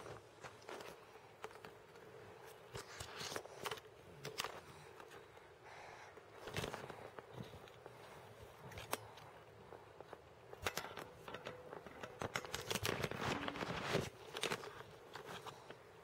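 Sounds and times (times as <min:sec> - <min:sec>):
camera handling clicks and rustles: 0:10.0 - 0:15.8.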